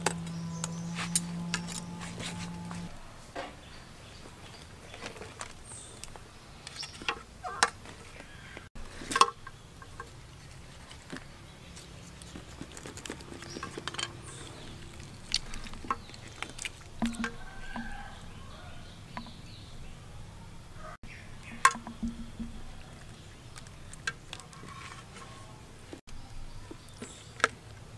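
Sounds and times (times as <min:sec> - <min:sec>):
lobster shell clicking and scraping: 0:08.8 - 0:18.4, 0:21.4 - 0:26.0.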